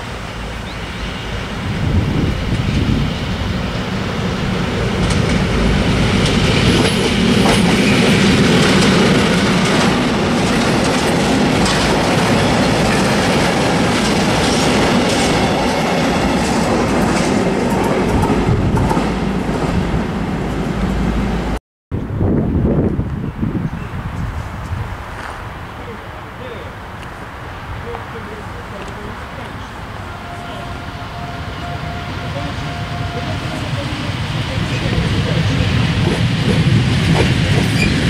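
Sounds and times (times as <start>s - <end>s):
diesel locomotive passing: 0.0s - 38.0s
wheels clattering over rail joints: 4.5s - 19.1s.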